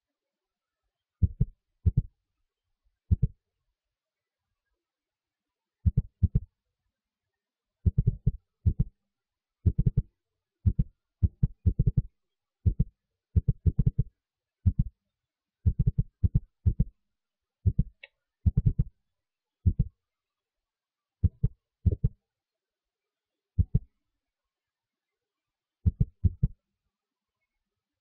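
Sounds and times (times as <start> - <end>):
short deep thumps: 1.2 - 2.1, 7.9 - 8.9, 10.7 - 12.1, 12.7 - 14.1, 15.7 - 16.9, 17.7 - 18.9, 21.2 - 22.1, 23.6 - 23.9, 25.9 - 26.6.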